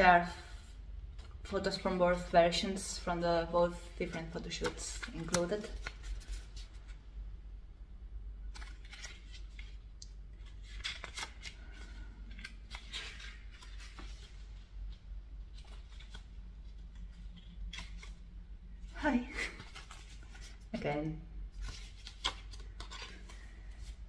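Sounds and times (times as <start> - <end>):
paper pages rustling and flicking: 3.7 - 7.0, 8.5 - 18.2, 19.1 - 24.0.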